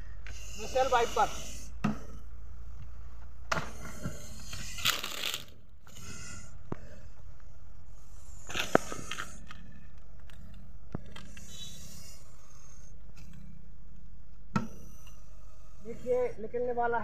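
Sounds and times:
dry leaves crunching: 4.8s - 5.5s
plastic bottle crinkling: 4.8s - 5.5s.

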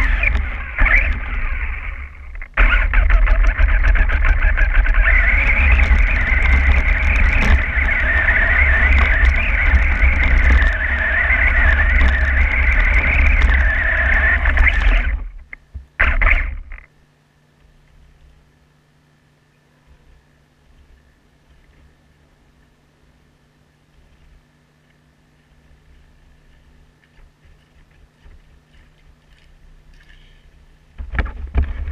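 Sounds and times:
low rumble: 0.0s - 15.6s
toy truck motor whine: 0.0s - 16.8s.

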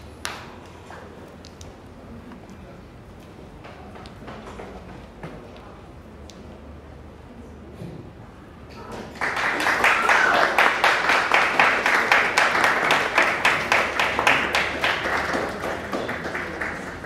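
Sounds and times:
audience applause: 9.0s - 17.0s.

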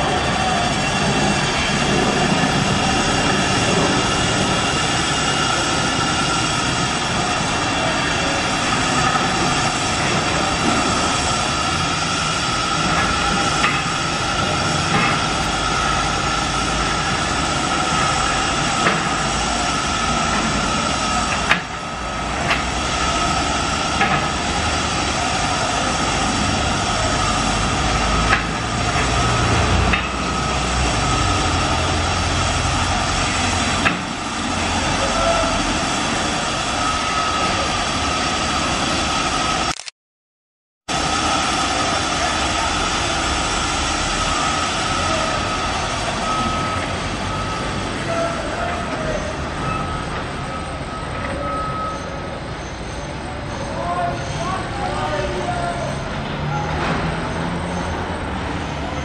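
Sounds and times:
construction machinery droning: 0.0s - 39.9s, 40.9s - 59.0s
sharp clicks: 39.7s - 39.9s.

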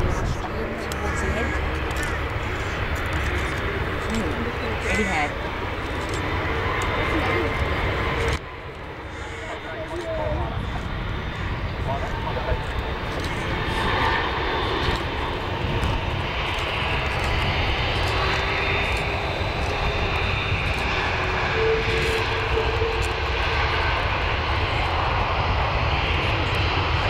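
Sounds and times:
high engine whine: 0.0s - 27.0s
jet engine rumble: 0.0s - 27.0s.

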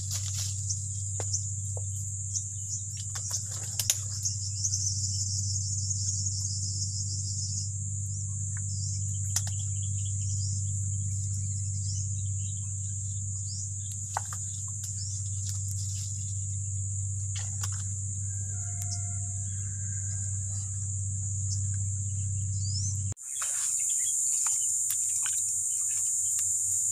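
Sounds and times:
insects chirring: 0.0s - 26.9s
low hum: 0.0s - 26.9s.

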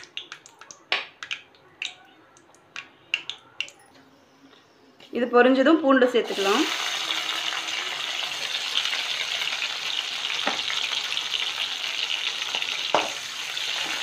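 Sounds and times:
garlic sizzling in hot oil: 6.2s - 14.0s
spatula knocking in a pan: 12.9s - 13.2s.

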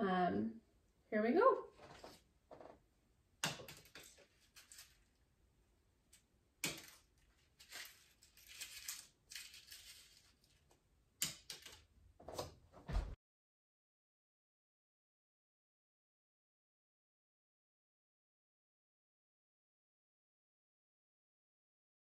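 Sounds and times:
paper rustling: 1.8s - 2.8s, 3.6s - 5.2s, 6.7s - 10.7s.

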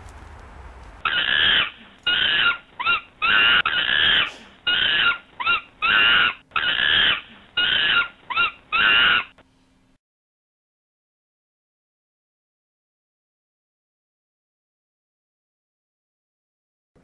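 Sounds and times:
monkey hooting: 1.0s - 9.4s.

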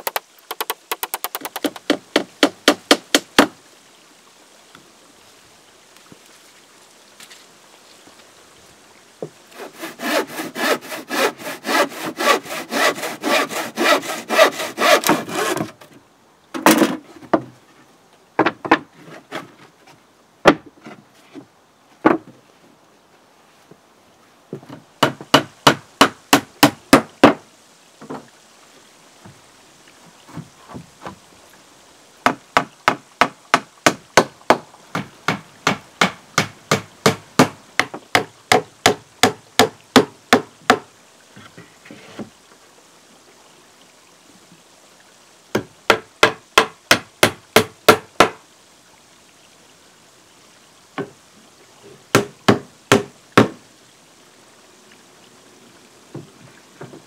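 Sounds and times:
hammer striking timber planks: 0.0s - 3.6s, 25.0s - 27.4s, 32.3s - 40.8s, 45.6s - 48.4s, 52.1s - 53.6s.

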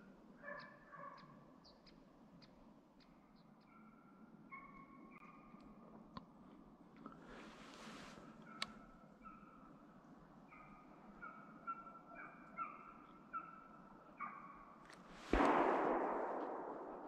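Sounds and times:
gunshot: 15.1s - 17.0s.

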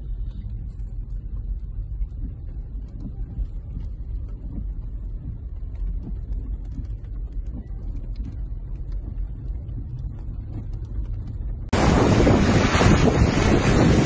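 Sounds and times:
car cabin rumble: 0.0s - 14.0s
loud rushing noise: 11.7s - 14.0s.

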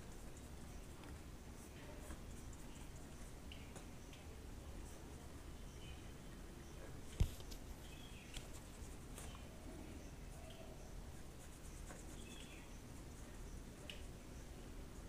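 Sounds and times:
paintbrush strokes on paper: 0.0s - 4.1s, 6.9s - 14.2s.

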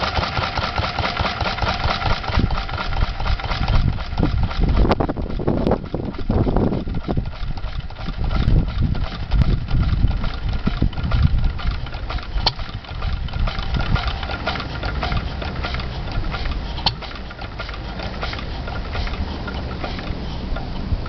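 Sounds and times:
stationary engine thumping: 0.0s - 21.0s
sharp clicks: 0.9s - 21.0s.

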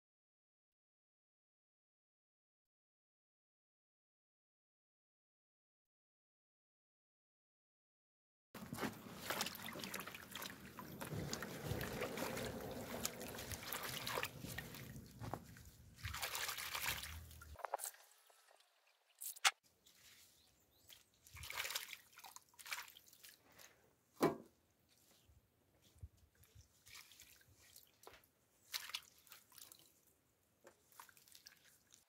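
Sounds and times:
water rushing into bucket: 8.6s - 19.4s
hands splashing water: 8.6s - 23.6s, 26.7s - 30.0s, 30.7s - 32.0s.

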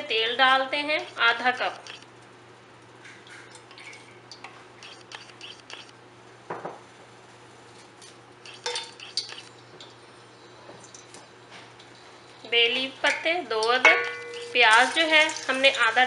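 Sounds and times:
utensils and dishes clinking: 8.4s - 10.0s, 12.8s - 16.0s.

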